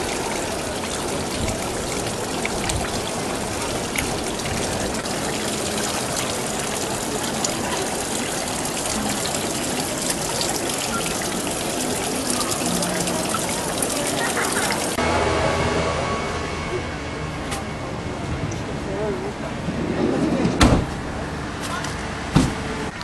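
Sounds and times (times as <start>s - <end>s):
fountain water splashing into basin: 0.0s - 15.0s.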